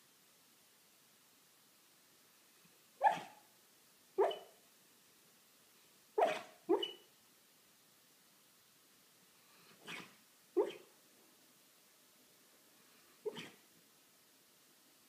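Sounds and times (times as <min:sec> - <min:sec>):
dog barking in sleep: 0:03.0 - 0:03.4, 0:04.2 - 0:04.6, 0:06.2 - 0:07.1, 0:09.8 - 0:10.9, 0:13.2 - 0:13.6.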